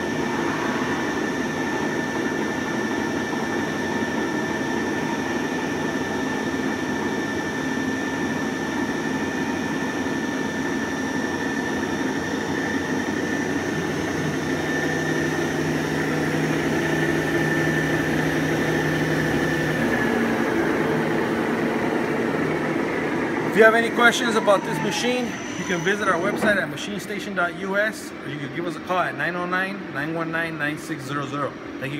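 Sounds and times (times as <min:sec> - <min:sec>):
lower machine tone: 0:00.0 - 0:28.8
machine hum: 0:00.0 - 0:30.8
high machine whine: 0:00.0 - 0:31.9.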